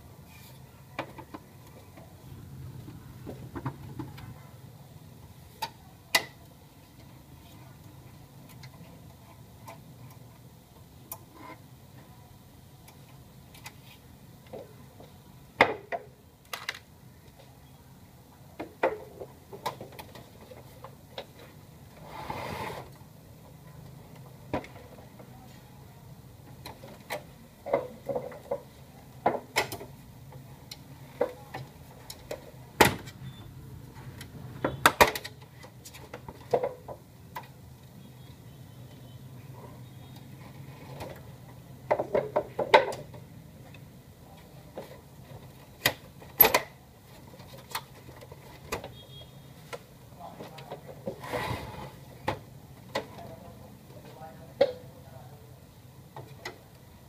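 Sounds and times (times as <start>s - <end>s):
plastic scrape: 22.0s - 22.9s, 51.1s - 52.1s.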